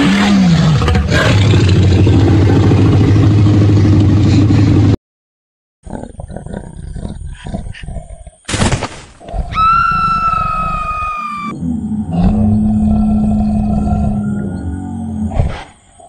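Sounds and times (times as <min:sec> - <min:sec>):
low rumbling growl: 0:00.0 - 0:05.0, 0:11.5 - 0:16.0
high screeching roar: 0:09.5 - 0:11.6.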